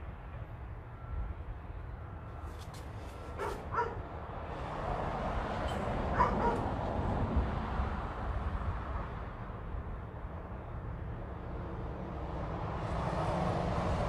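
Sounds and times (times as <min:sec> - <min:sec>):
dog yipping barks: 0:03.4 - 0:04.0, 0:06.1 - 0:06.6.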